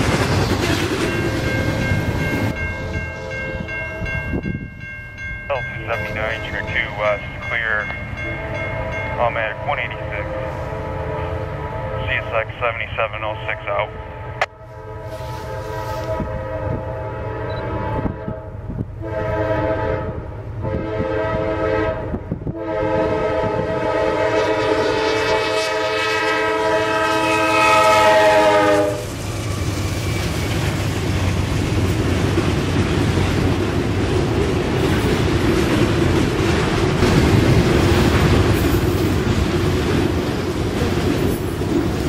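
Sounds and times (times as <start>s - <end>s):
locomotive chord horn blasts: 5.9s - 29.2s.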